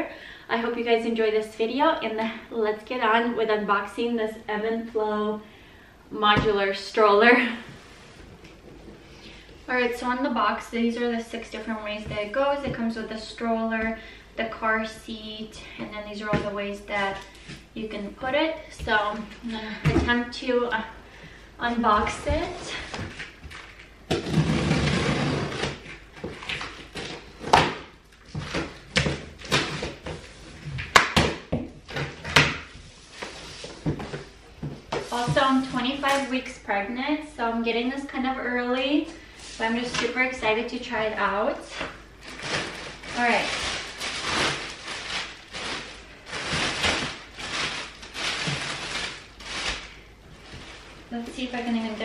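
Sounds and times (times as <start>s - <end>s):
plastic packaging crinkling: 42.0s - 52.0s.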